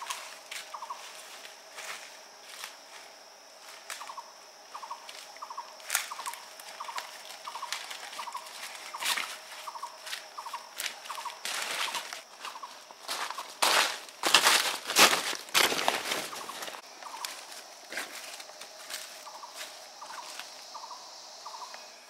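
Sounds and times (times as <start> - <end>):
footsteps crunching through leaves: 0.0 - 4.2, 4.8 - 20.8.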